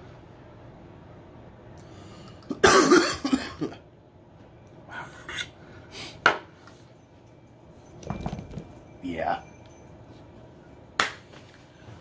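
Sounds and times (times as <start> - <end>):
man coughing: 2.5 - 3.8.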